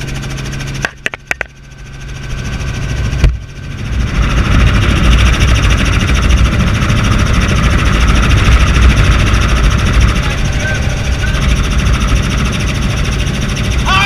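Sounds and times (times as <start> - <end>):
helicopter rotor and engine: 0.0 - 14.0.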